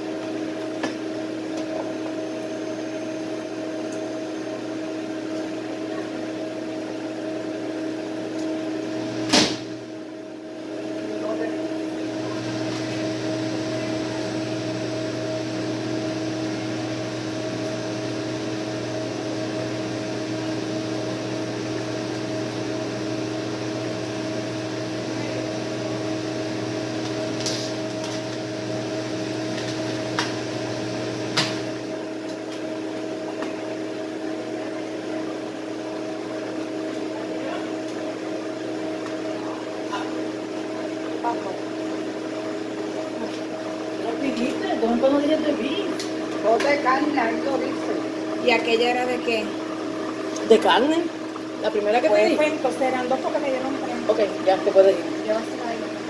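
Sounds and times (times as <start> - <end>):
microwave oven humming: 0.0 - 56.0.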